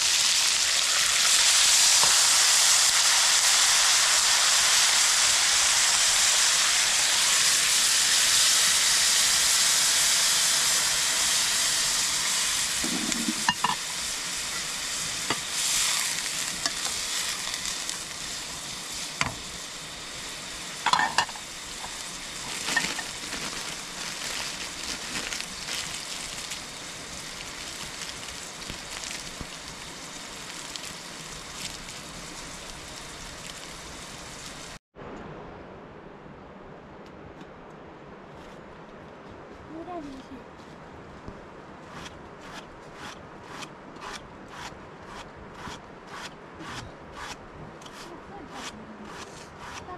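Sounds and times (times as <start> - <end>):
meat sizzling in a wok: 0.0 - 34.8.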